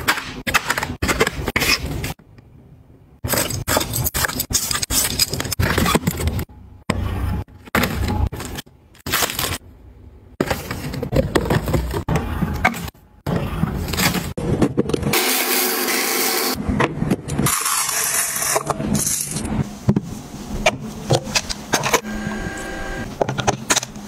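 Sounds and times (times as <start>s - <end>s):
packaging rustling and crinkling: 7.8s - 9.6s.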